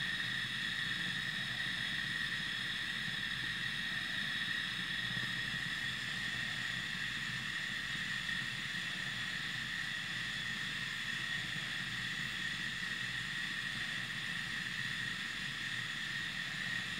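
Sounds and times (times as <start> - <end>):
constant high whine: 0.0 - 16.9.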